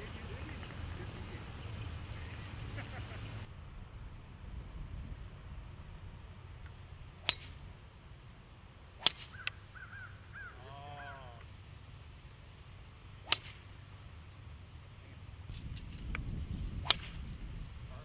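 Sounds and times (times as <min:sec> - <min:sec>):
golf club striking ball: 0:06.6 - 0:07.8, 0:09.0 - 0:09.6, 0:13.2 - 0:13.9, 0:16.8 - 0:17.3
bird calling: 0:09.1 - 0:11.6.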